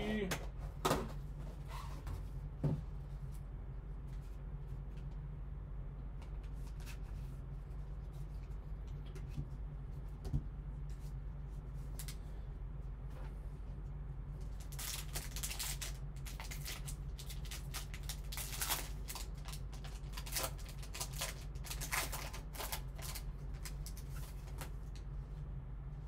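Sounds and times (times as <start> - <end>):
foil wrapper crinkling and tearing: 14.5 - 25.0.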